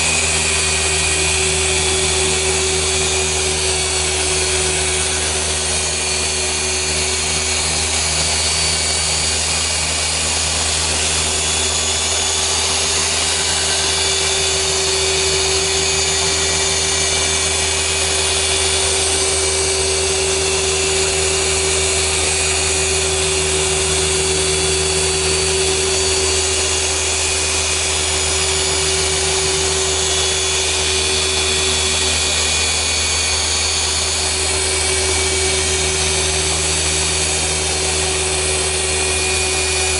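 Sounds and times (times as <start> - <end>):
polisher motor hum and whine: 0.0 - 39.9.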